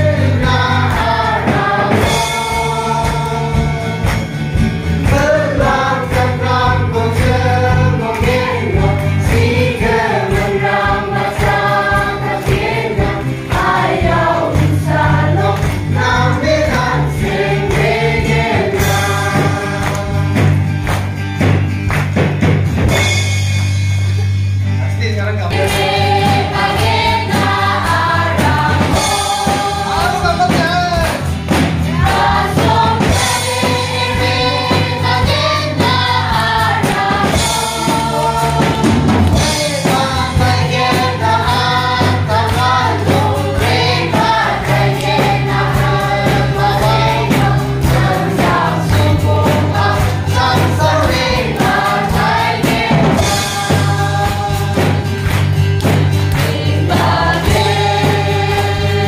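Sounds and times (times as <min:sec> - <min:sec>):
acoustic guitar: 0:00.0 - 0:59.0
drum kit: 0:00.0 - 0:59.0
electric bass: 0:00.0 - 0:59.0
man singing: 0:05.1 - 0:09.2, 0:39.4 - 0:41.0.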